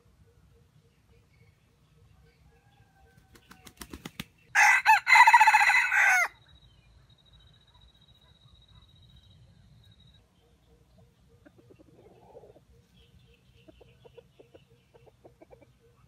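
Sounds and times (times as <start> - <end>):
rooster crowing: 4.6 - 6.4.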